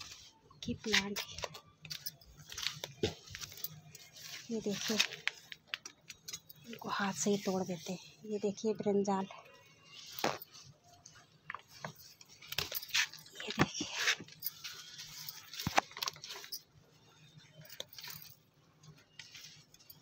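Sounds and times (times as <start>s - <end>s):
leaves and stems rustling: 2.4s - 5.6s.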